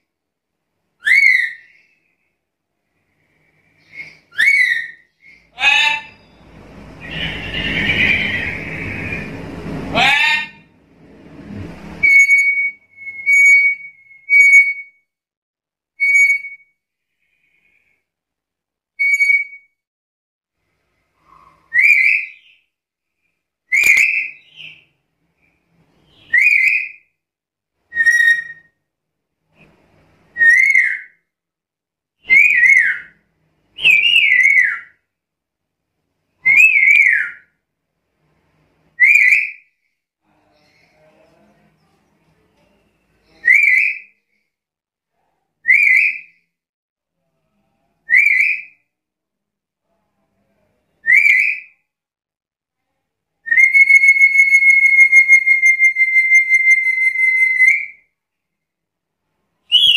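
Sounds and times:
parrot whistling: 1.0 - 1.8, 3.8 - 6.4, 7.0 - 10.6, 12.0 - 15.0, 27.9 - 28.7, 53.5 - 58.0.

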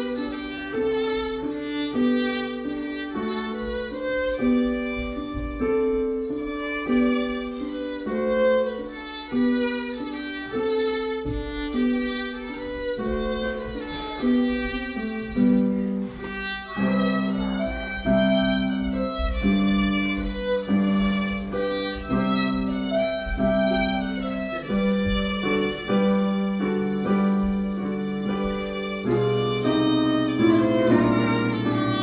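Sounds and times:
digital piano: 0.0 - 32.0
violin slow melody: 0.0 - 32.0.

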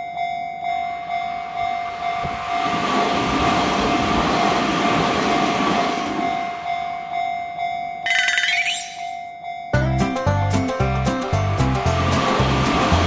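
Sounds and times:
train passing: 0.0 - 9.6, 10.6 - 13.0
level crossing bell dinging: 7.2 - 9.8.

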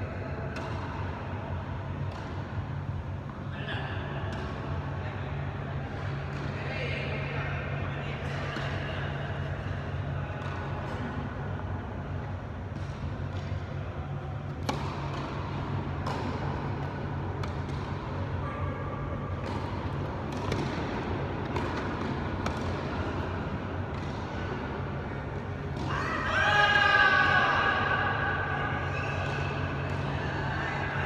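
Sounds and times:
steady low hum: 0.0 - 31.0
tennis ball bouncing on court: 0.5 - 1.2, 2.0 - 3.4, 4.2 - 4.8, 10.3 - 11.3, 12.2 - 13.8, 14.4 - 18.6, 19.2 - 26.0
tennis ball struck by racquets: 2.1 - 2.4, 14.4 - 18.5, 19.3 - 25.9.

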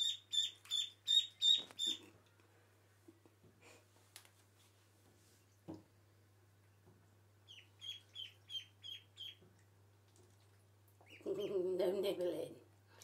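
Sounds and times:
ducklings peeping: 0.0 - 2.1, 7.4 - 9.4, 11.0 - 11.6.

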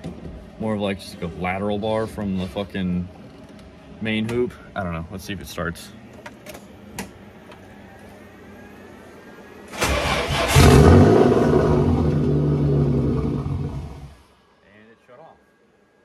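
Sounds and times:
engine cranking and starting: 9.7 - 14.1.

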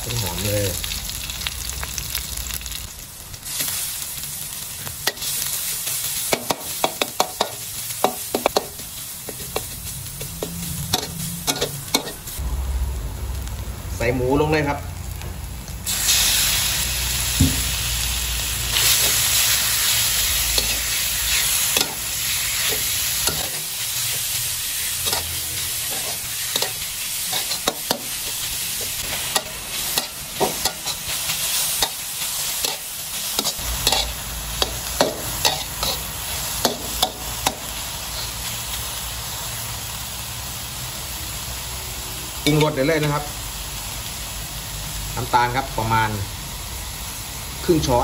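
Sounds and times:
meat sizzling in hot oil: 0.0 - 48.0
metal spatula scraping wok: 5.0 - 12.4, 18.7 - 38.5.

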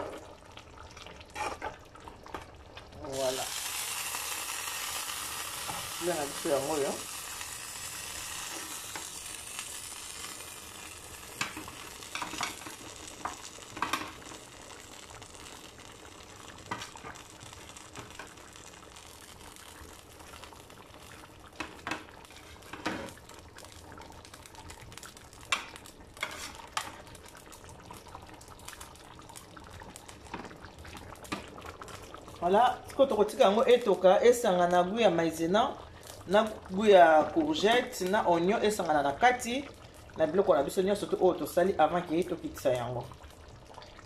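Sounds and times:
sauce sizzling in a frying pan: 0.0 - 44.0.

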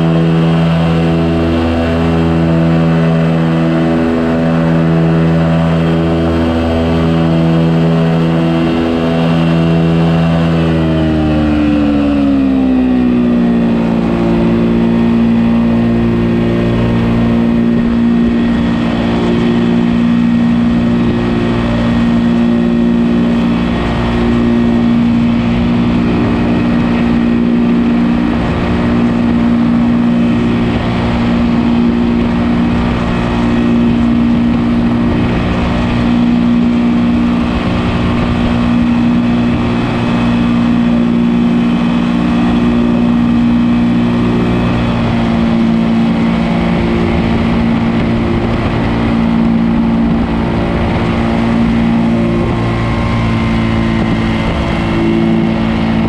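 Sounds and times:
ultralight aircraft engine droning: 0.0 - 56.0
wind rushing: 13.6 - 56.0.

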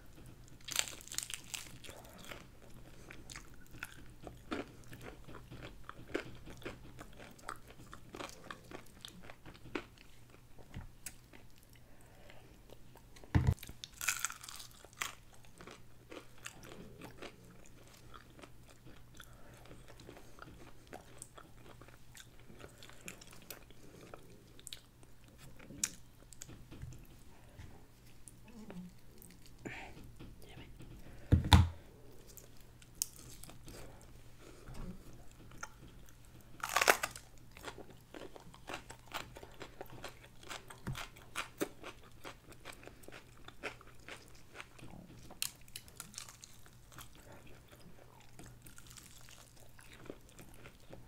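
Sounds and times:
chewing: 0.1 - 27.2, 32.2 - 51.0
fried chicken crunching: 0.5 - 2.4, 13.5 - 16.7, 36.6 - 47.7.

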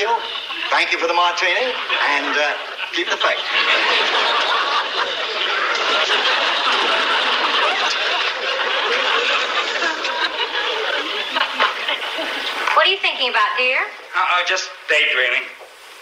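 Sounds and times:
audience laughing: 0.0 - 12.8.

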